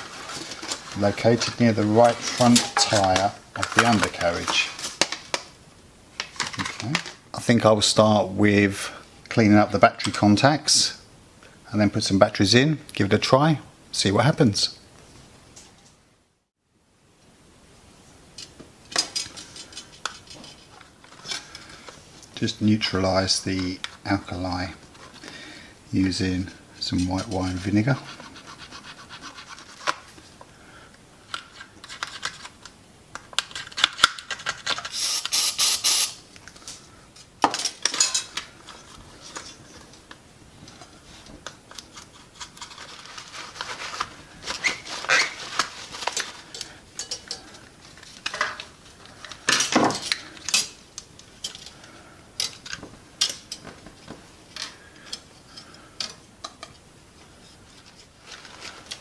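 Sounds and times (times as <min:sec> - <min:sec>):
tools clinking and clattering: 0:46.1 - 0:47.6.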